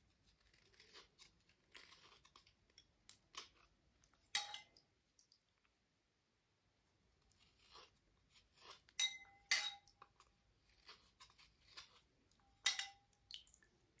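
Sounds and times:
stone scraping and rubbing: 0.2s - 2.5s.

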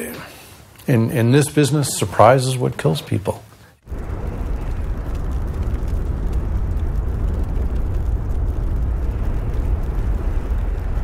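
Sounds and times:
deep rumbling noise: 3.8s - 11.0s.

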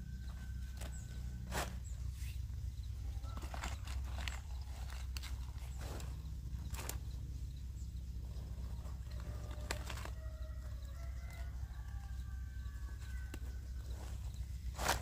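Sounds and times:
steady low rumble: 0.0s - 10.9s.

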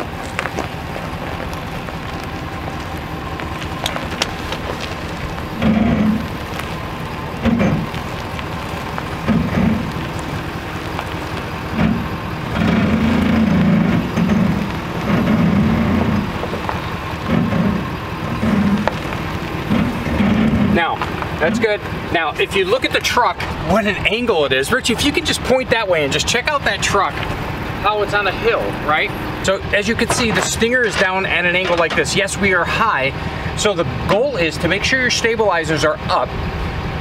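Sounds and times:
pickup truck engine rumbling: 0.0s - 37.0s.

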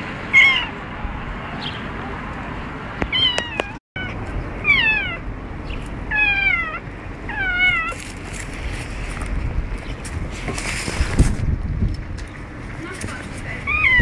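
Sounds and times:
cat meowing: 0.3s - 0.8s, 3.1s - 5.2s, 6.1s - 8.0s, 13.7s - 14.0s.

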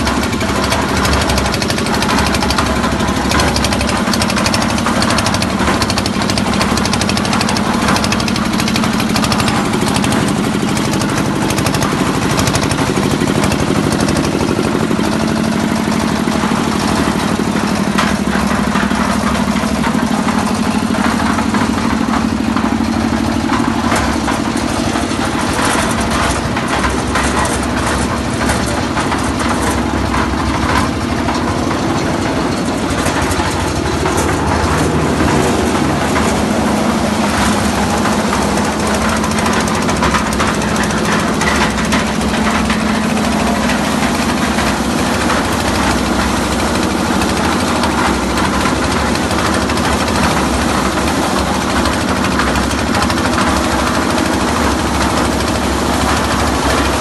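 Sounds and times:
diesel engine running with knocking: 0.0s - 57.0s.

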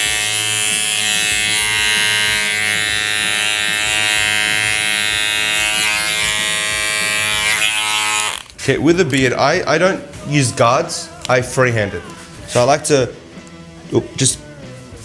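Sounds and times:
electric hair clipper running: 0.0s - 8.5s.

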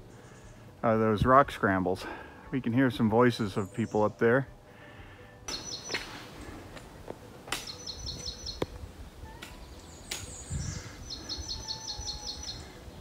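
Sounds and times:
songbird singing high notes: 5.5s - 6.4s, 7.6s - 13.0s.

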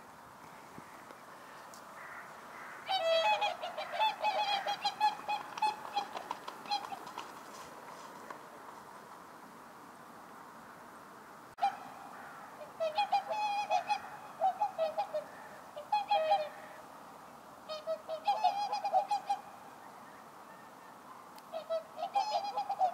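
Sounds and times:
swans bugling honks: 2.0s - 8.3s, 11.6s - 16.9s, 17.7s - 22.9s.

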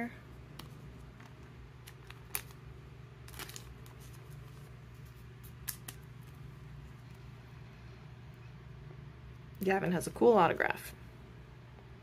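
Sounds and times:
low steady hum: 0.0s - 12.0s
plastic rustle: 0.7s - 2.6s, 3.2s - 6.4s.

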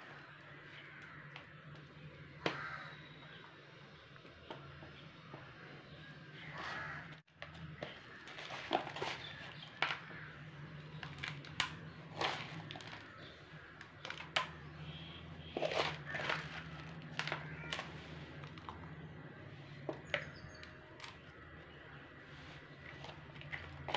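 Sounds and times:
dry soil crunching: 6.4s - 23.9s.

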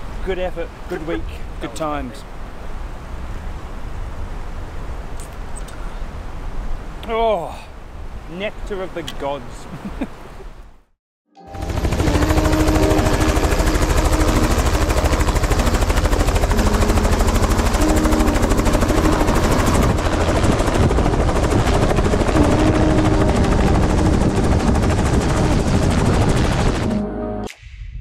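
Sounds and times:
helicopter rotor beating: 11.5s - 27.1s.

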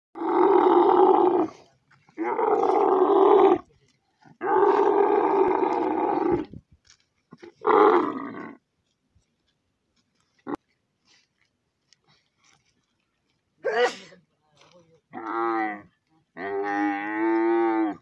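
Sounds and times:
camel bellowing: 0.2s - 3.7s, 4.4s - 6.5s, 7.4s - 8.6s, 15.1s - 18.0s.

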